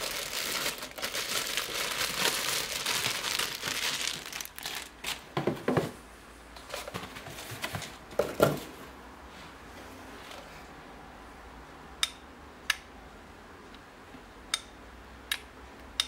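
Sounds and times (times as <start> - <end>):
plastic bag crinkling: 0.0 - 5.5.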